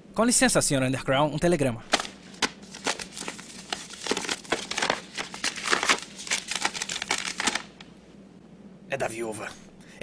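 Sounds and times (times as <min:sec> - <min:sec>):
paper rustling and crinkling: 0:01.9 - 0:07.9.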